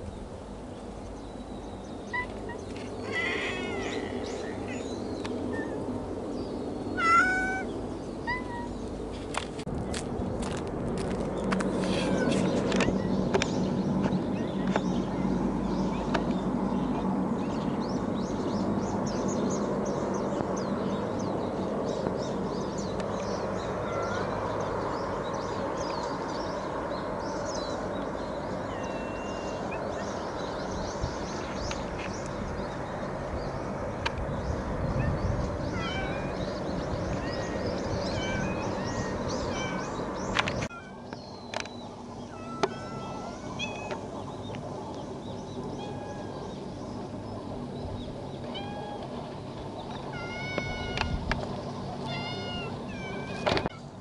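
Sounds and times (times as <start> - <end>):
small birds chirping: 0.0 - 10.6, 11.2 - 54.0
distant hovercraft drone: 0.0 - 54.0
cat meowing: 7.0 - 7.7, 35.7 - 36.3, 37.2 - 39.9, 42.3 - 44.0, 50.1 - 51.2, 52.0 - 53.8.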